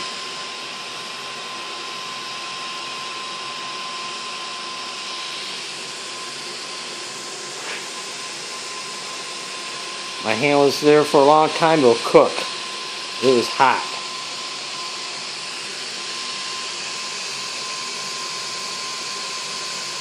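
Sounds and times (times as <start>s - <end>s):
hissing gas jets and flame: 5.6s - 18.7s.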